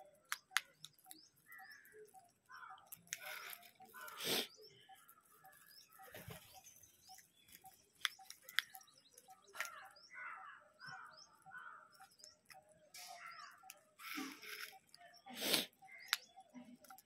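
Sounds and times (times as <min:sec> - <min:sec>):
short chirping bird calls: 0:00.0 - 0:17.0
sharp clicks: 0:00.2 - 0:01.3, 0:07.1 - 0:09.9, 0:15.9 - 0:17.0
crows flapping wings: 0:06.0 - 0:06.7.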